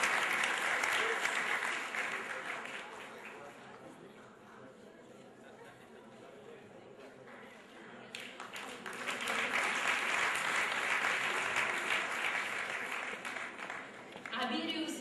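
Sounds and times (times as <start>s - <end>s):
audience applauding: 0.0s - 3.5s, 8.1s - 14.4s.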